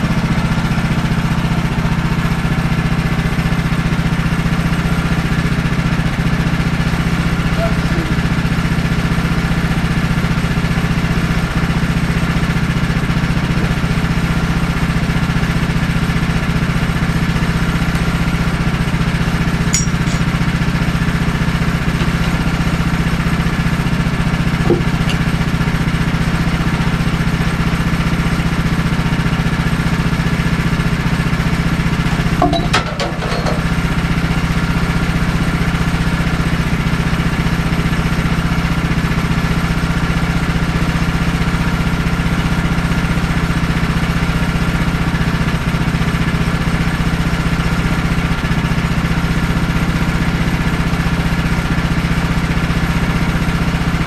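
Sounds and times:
gas engine idling: 0.0 - 54.0
light knocks on log: 24.7 - 25.2.

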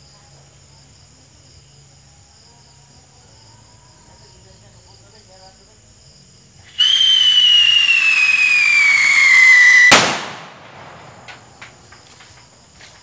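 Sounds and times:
firework whistle falling in pitch: 6.8 - 10.2
firework bang echoing: 6.8 - 12.2.

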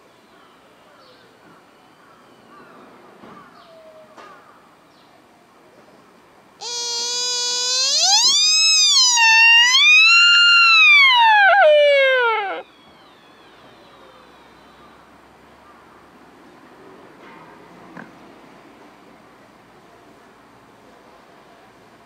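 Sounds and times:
deer stag whistling call: 6.6 - 14.8.

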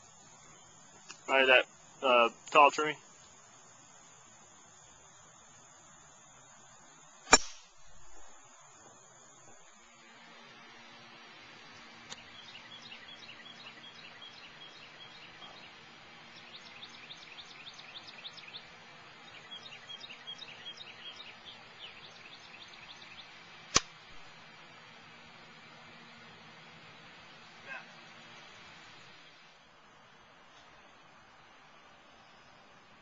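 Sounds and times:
small birds trilling: 11.6 - 23.7.

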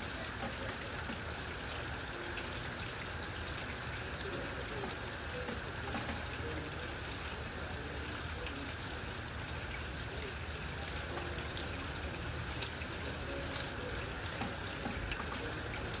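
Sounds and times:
steady rain hiss: 0.0 - 16.0
water drips tapping: 0.1 - 6.8, 10.5 - 16.0.

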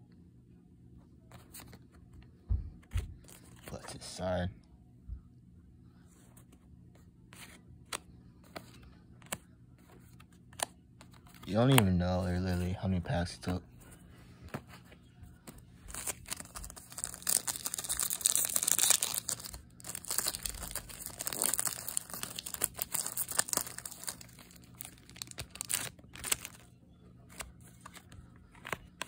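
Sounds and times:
foil wrapper crinkling and tearing: 15.8 - 26.7.

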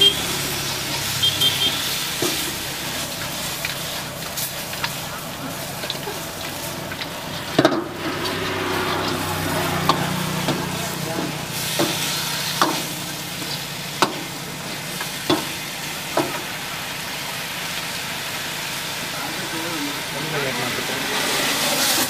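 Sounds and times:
metal ladle scraping wok: 0.0 - 17.1
food sizzling in a wok: 0.0 - 22.0.

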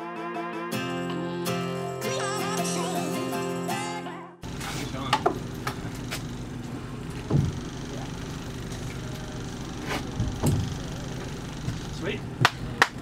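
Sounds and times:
outboard motor running: 4.4 - 12.8
dull knocks on boat: 7.3 - 7.6.

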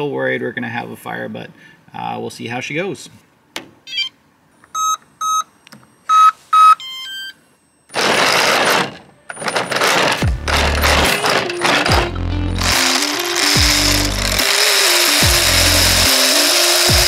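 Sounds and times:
electronic transmitter beeps: 3.9 - 8.0
loud harsh noise bursts: 8.0 - 17.0.

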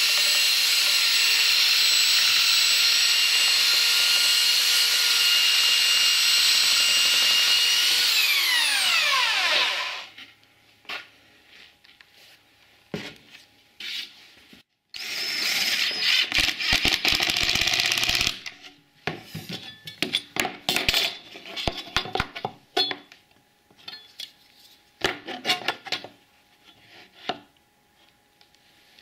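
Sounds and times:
handheld power tool running: 0.0 - 10.1.

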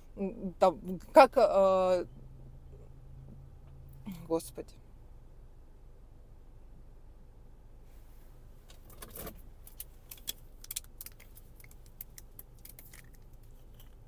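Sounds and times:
plastic bottle crinkling: 9.7 - 14.0.

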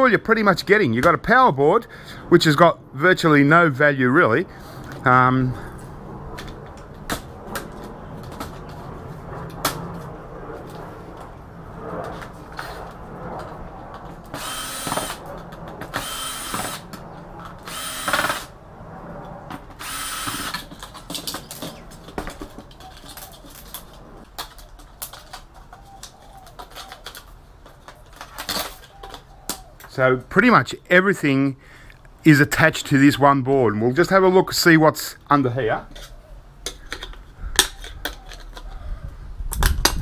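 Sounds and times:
cordless power drill: 14.3 - 15.2, 15.9 - 16.8, 17.6 - 18.5, 19.8 - 20.7.

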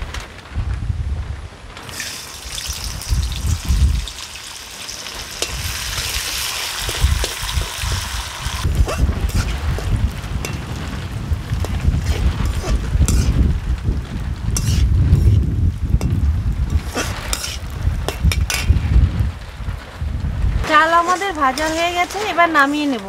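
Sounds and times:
wind rumbling on microphone: 0.0 - 23.0
rice sizzling in hot oil: 1.8 - 18.8, 20.6 - 23.0
spoon stirring against pan: 5.3 - 8.1, 8.8 - 10.7, 11.6 - 13.4, 14.6 - 15.4, 16.0 - 18.7, 20.7 - 23.0.

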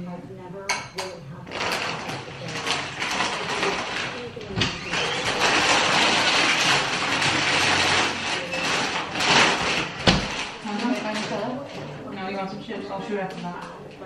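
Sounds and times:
plastic snack bag crinkling: 1.5 - 11.9.

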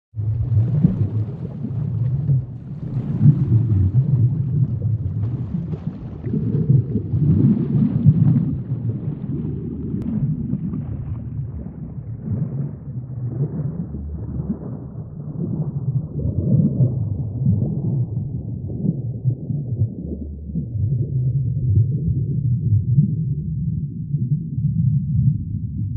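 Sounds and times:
deep underwater rumble: 0.1 - 25.9
water gurgling: 0.1 - 25.9.

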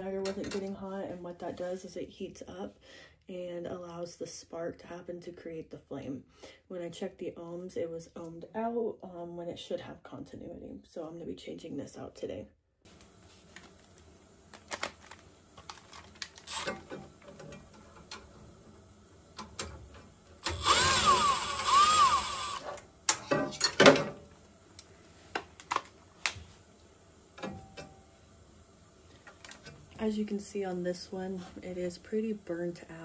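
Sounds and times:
cordless screwdriver motor whine: 16.4 - 16.9, 20.4 - 22.7.

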